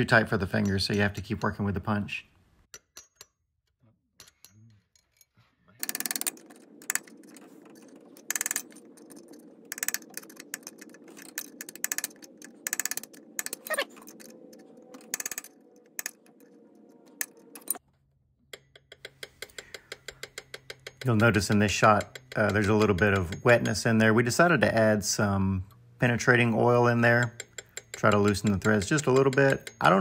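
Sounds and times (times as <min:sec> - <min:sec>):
hammer tapping metal punch: 0:00.5 - 0:01.6, 0:05.8 - 0:17.8, 0:18.5 - 0:24.2, 0:27.0 - 0:30.0.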